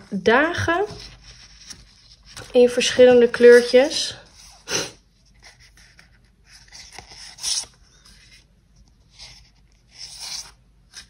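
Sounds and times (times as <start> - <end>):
paper sheets rustling: 0.5 - 4.6.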